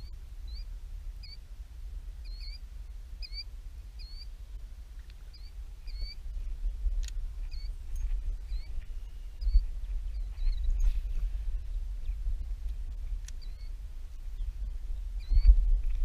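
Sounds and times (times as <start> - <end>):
wind rumble on microphone: 0.0 - 16.0
small animal chirping: 1.2 - 1.4, 2.2 - 2.6, 3.2 - 3.4, 4.0 - 4.3, 5.3 - 6.2, 7.5 - 7.7, 8.4 - 10.8, 13.3 - 13.7, 15.2 - 15.6.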